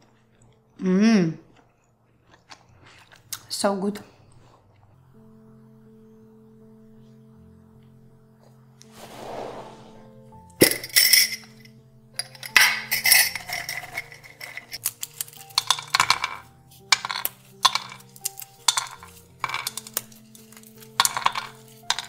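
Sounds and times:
background music: 0.0s - 1.8s, 3.1s - 22.0s
nuts clicking on a frying pan: 14.8s - 22.0s.

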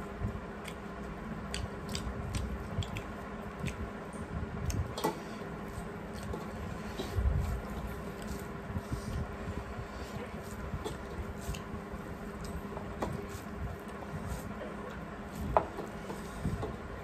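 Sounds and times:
faint steady hum: 0.0s - 17.0s
chewing: 1.5s - 3.8s.

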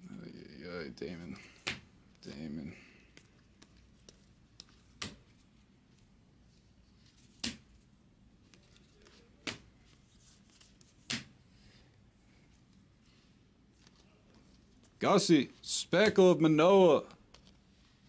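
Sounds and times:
cards flipped by hand: 3.1s - 6.0s, 6.9s - 11.4s.

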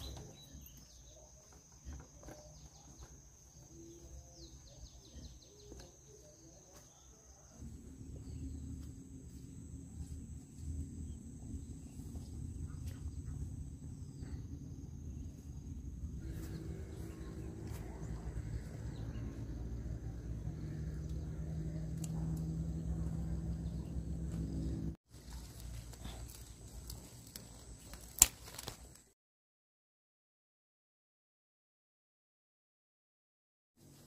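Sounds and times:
bird chirps: 0.0s - 8.9s
insects droning: 0.0s - 29.1s
low steady rumble: 7.6s - 27.2s.

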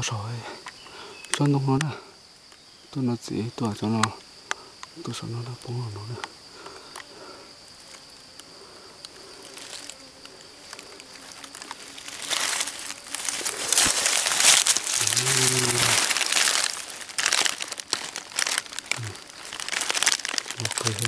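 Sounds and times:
dry leaves crunching and rustling: 9.4s - 10.0s, 10.6s - 21.0s
low grunt-like voice: 15.0s - 16.0s, 19.0s - 19.2s.

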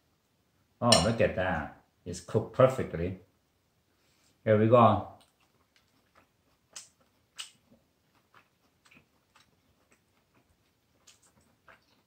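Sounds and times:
mouth clicks from chewing: 5.2s - 12.0s.

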